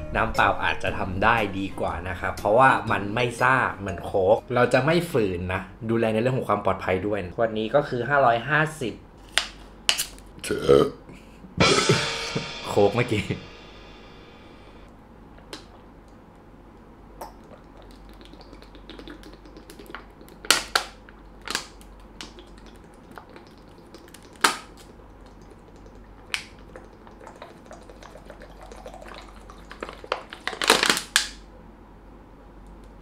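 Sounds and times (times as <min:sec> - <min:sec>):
plastic bottle crackling: 0:29.4 - 0:31.4.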